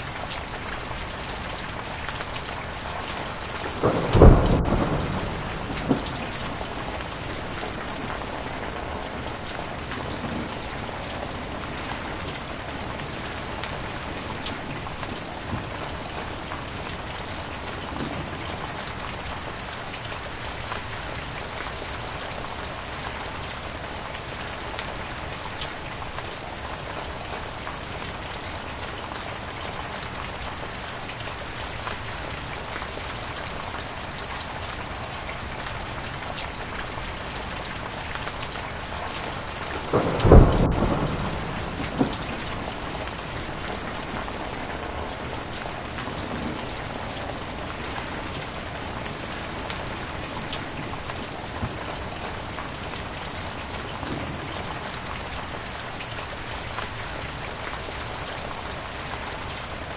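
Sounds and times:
heavy rain falling: 0.0s - 59.9s
thunder clap rumbling: 3.2s - 18.6s, 39.6s - 51.9s.

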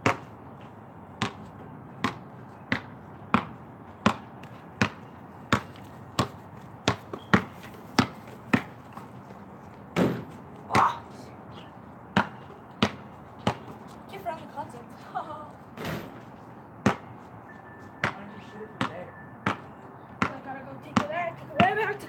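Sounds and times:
basketball bouncing on pavement: 0.0s - 11.0s, 12.1s - 14.6s, 15.8s - 17.2s, 17.8s - 22.0s
dull thuds: 9.9s - 10.9s.

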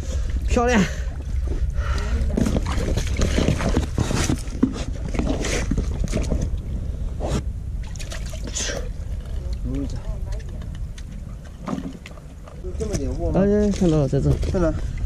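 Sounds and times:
low wind rumble on microphone: 0.0s - 15.0s
boots splashing through water: 2.0s - 6.3s
hands scrabbling among stones: 2.2s - 6.6s.

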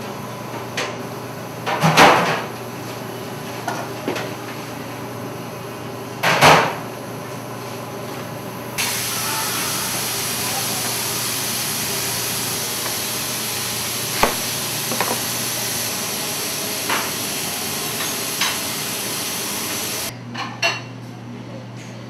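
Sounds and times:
kitchen equipment hissing: 8.8s - 20.1s
utensils knocking and clattering: 14.2s - 15.3s.

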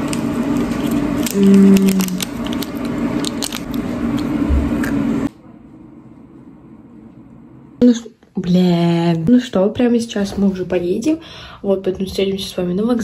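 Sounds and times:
wrapper crackling: 0.0s - 4.3s
crunchy biting and chewing: 0.0s - 5.0s.

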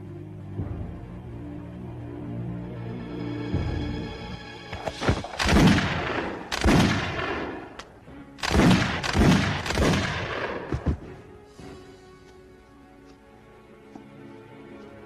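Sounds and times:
echoing handgun shots: 5.3s - 10.8s.

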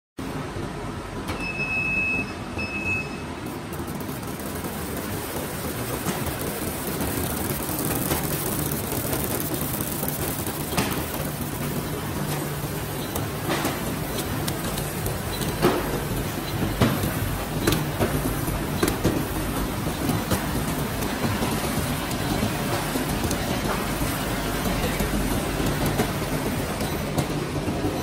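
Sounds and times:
packing machine clatter and hum: 0.2s - 28.0s
short high beeps: 1.4s - 3.3s.

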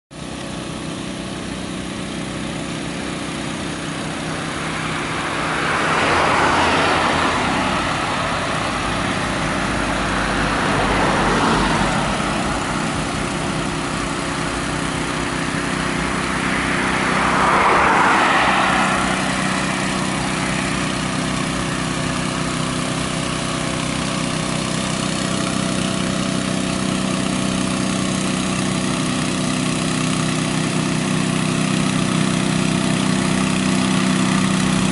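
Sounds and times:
road traffic passing: 0.1s - 34.9s
truck engine running: 0.1s - 34.9s.

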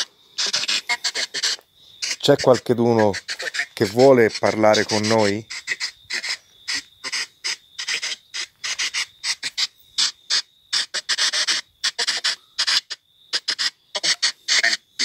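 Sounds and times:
thin steady high tone: 0.0s - 6.9s
radio static bursts: 0.0s - 15.0s.

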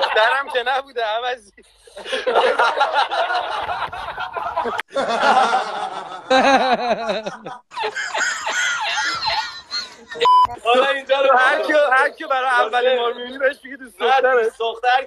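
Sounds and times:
men laughing hard: 1.9s - 10.4s.

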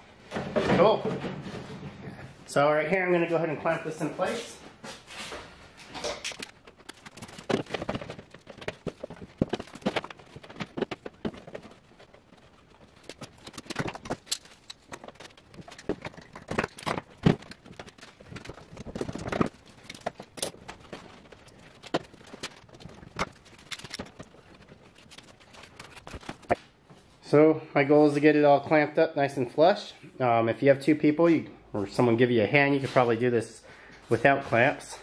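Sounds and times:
clamps clicking and clattering: 5.8s - 11.8s, 12.9s - 24.2s.

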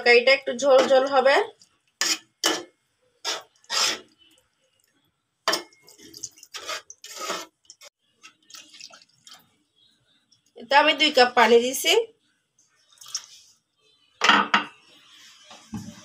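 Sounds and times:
metal spatula scraping a pot: 2.0s - 4.3s, 5.5s - 7.9s
water splashing into curry: 8.2s - 9.5s, 12.9s - 13.4s.

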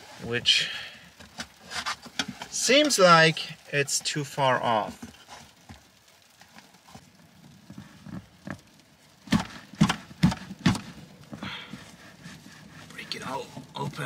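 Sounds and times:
faint rustling: 0.0s - 14.0s
dull knocks: 9.3s - 11.5s.

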